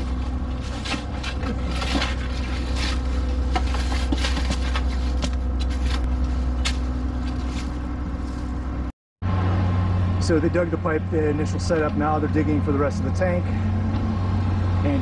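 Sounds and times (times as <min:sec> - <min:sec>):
shovels scraping into soil: 0:00.0 - 0:08.6
excavator engine droning: 0:00.0 - 0:15.0.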